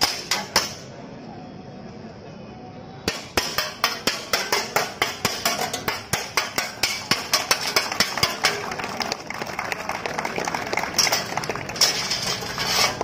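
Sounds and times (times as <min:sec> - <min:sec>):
metal blades striking shields: 0:03.1 - 0:08.4.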